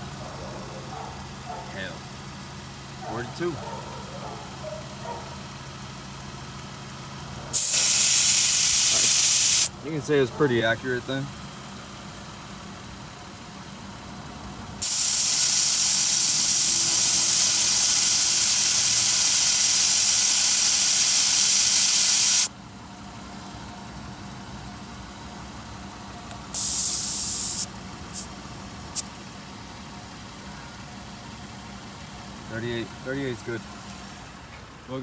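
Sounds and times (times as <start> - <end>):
air hissing from tire valve: 7.5 - 9.7, 14.8 - 22.5, 26.5 - 29.1.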